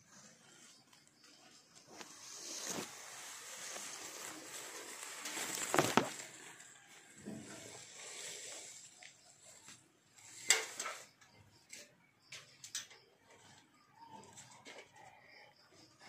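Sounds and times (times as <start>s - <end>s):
leaves and branches rustling: 0.1s - 11.2s.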